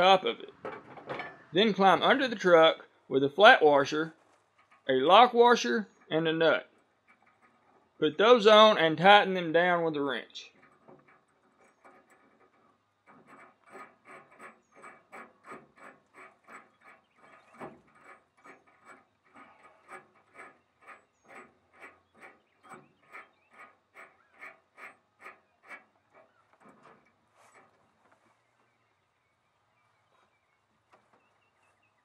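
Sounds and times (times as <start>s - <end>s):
wrench rasping on nut: 10.5s - 27.0s.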